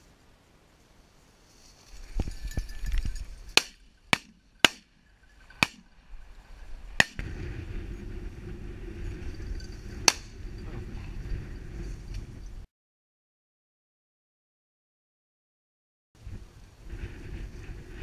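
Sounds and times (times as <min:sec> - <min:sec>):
wind on microphone: 0:01.9 - 0:03.6, 0:05.3 - 0:12.7, 0:16.2 - 0:18.0
shotgun shots: 0:03.6 - 0:05.0, 0:05.6 - 0:05.9.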